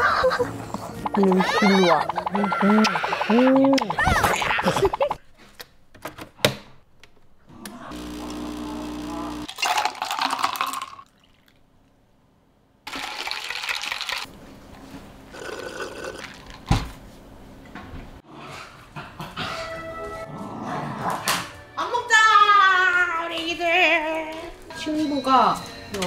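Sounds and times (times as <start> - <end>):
water running: 0.2 - 5.2.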